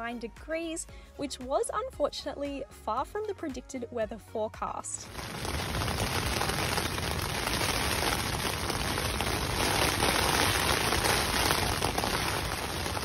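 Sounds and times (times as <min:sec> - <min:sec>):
heavy rain on a tent: 0:05.0 - 0:13.0.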